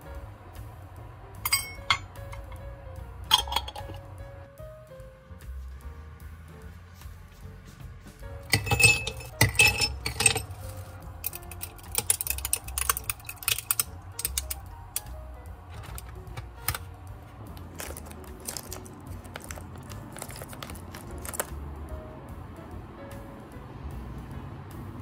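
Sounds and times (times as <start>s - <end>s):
background music: 0.0s - 25.0s
coffee capsules clattering together: 3.3s - 4.0s, 8.5s - 15.1s, 17.7s - 21.5s.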